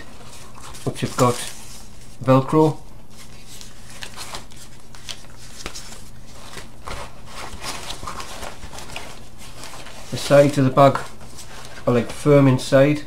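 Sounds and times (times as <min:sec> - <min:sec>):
fabric rustling and rubbing: 0:03.1 - 0:12.3.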